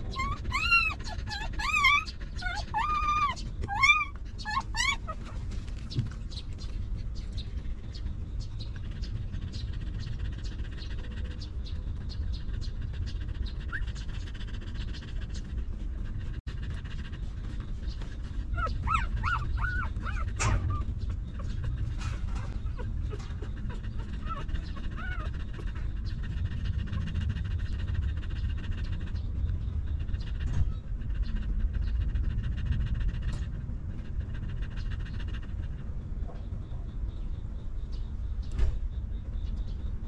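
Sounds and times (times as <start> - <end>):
puppies whimpering: 0.0 - 15.5, 16.1 - 31.5
dog panting: 0.0 - 38.2
low rumble: 0.0 - 40.0.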